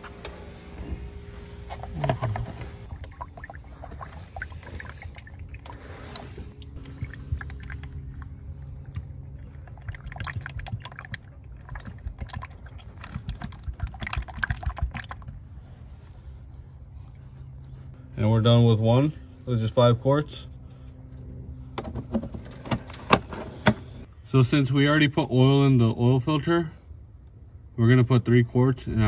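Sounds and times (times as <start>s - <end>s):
low steady rumble: 0.0s - 29.0s
oil glugging through a funnel: 1.7s - 16.5s.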